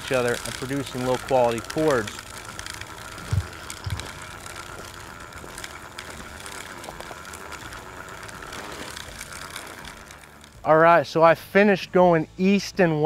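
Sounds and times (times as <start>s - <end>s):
hand-crank seed spreader whirring: 0.0s - 11.7s
soft footsteps: 3.2s - 6.2s.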